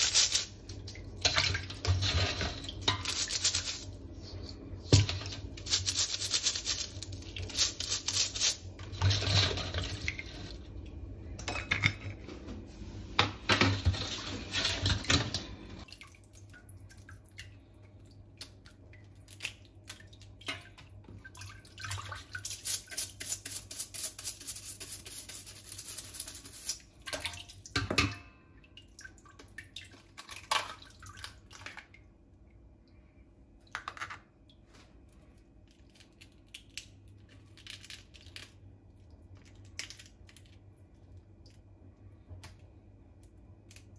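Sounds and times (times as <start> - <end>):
brush scrubbing crab shell: 0.0 - 0.7, 2.0 - 10.6, 22.4 - 27.0
water sloshing in a bowl: 0.5 - 5.7, 8.6 - 12.2, 13.4 - 23.1, 26.8 - 32.6.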